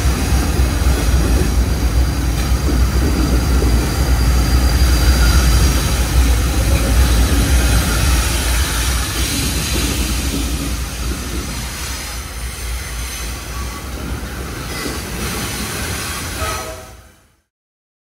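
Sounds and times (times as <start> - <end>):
freight train rumbling past: 0.0 - 17.4
high wheel squeal: 1.5 - 9.4.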